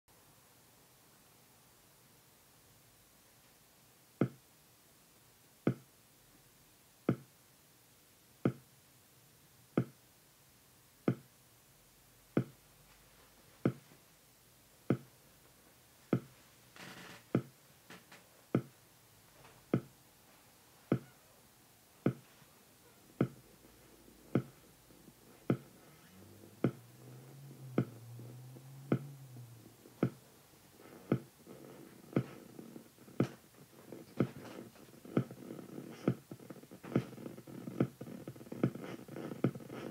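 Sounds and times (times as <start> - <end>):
low hum: 23.0 - 32.0.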